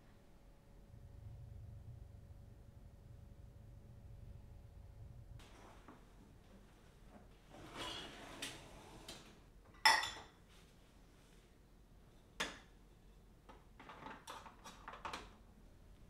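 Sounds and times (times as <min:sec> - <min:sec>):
crockery clinking: 0:09.7 - 0:10.4.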